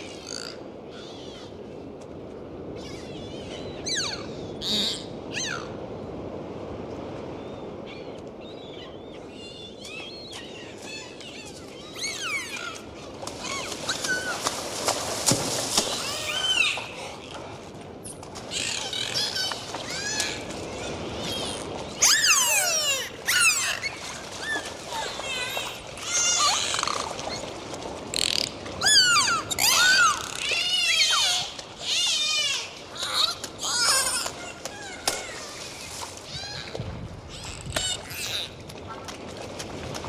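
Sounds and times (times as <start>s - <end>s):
dolphin whistles: 3.8s - 5.7s, 21.4s - 24.7s, 28.8s - 31.4s.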